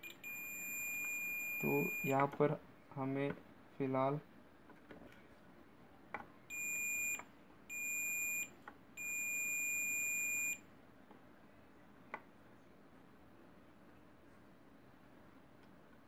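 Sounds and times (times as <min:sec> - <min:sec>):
multimeter continuity beeps: 0:00.0 - 0:02.3, 0:06.5 - 0:10.6.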